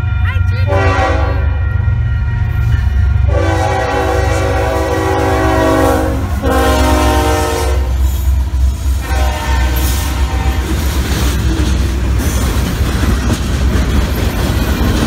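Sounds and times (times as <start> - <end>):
diesel locomotives rumbling: 0.0 - 15.0
locomotive air horn blasts: 0.7 - 1.6, 3.2 - 8.1, 9.0 - 10.8.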